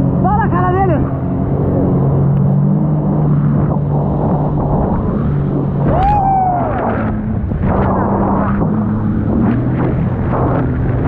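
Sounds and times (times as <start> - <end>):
jet ski engine running: 0.0 - 11.0
water rushing against hull: 0.0 - 11.0
short rising and falling cry: 5.8 - 7.4.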